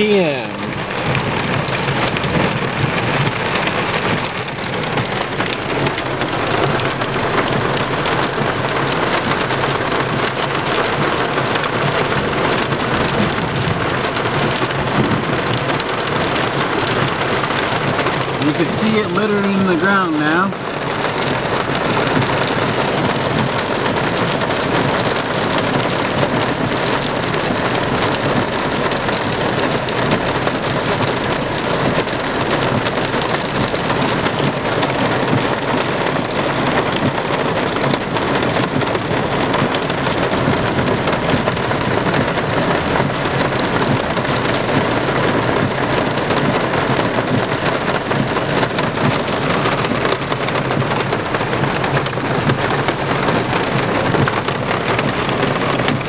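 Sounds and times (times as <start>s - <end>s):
heavy rain and hail: 0.0s - 56.0s.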